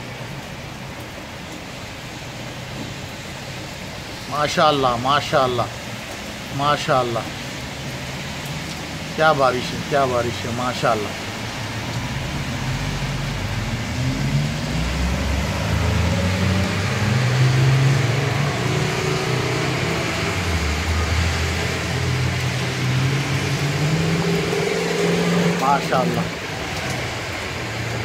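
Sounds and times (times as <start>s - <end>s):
cars driving on wet road: 0.0s - 28.0s
heavy rain falling: 0.0s - 28.0s.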